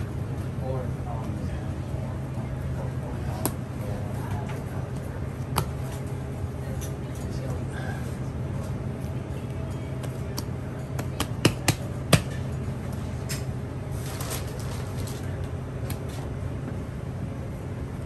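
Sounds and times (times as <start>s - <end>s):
steady low hum: 0.0s - 18.0s
hands slapping dough: 10.0s - 12.3s.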